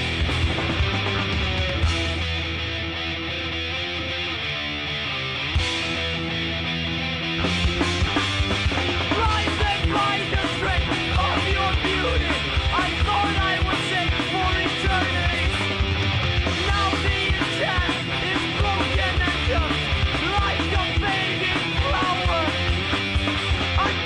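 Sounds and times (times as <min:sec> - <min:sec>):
bass guitar: 0:00.0 - 0:24.0
drums: 0:00.0 - 0:24.0
electric guitar: 0:00.0 - 0:24.0.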